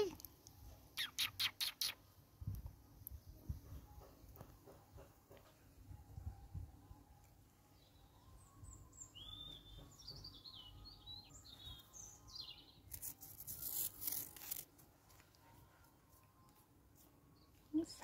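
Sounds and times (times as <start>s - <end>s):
small birds chirping: 1.0s - 3.4s, 7.8s - 14.2s
scratchy rustling: 12.9s - 17.2s.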